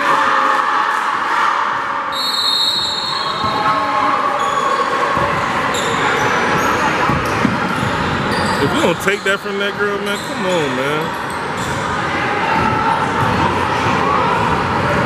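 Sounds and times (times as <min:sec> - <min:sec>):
crowd chatter: 0:00.0 - 0:15.0
sneaker squeaks: 0:02.1 - 0:11.9.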